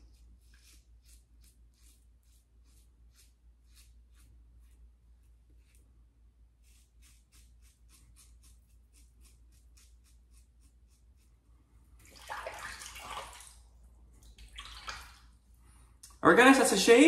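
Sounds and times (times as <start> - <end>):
razor scraping stubble: 0.0 - 4.8, 6.6 - 11.4
water running from tap: 12.0 - 13.6, 14.3 - 15.2
water splash: 12.0 - 13.6, 14.3 - 15.3.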